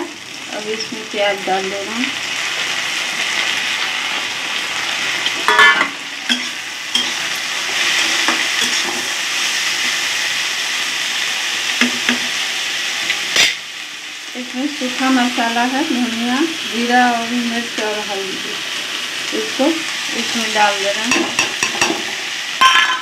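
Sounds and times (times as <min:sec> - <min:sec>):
vegetables sizzling in hot oil: 0:00.0 - 0:23.0
spatula scraping pan: 0:05.2 - 0:09.2.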